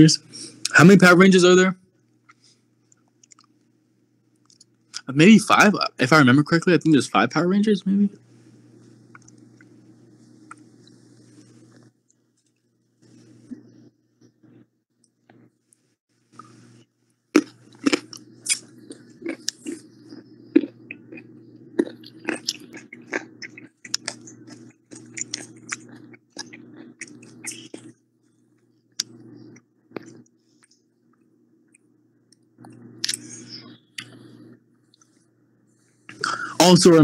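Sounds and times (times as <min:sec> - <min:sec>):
low hum: 0:03.2 - 0:15.6, 0:16.3 - 0:37.0
person chewing crunchily: 0:17.3 - 0:28.0.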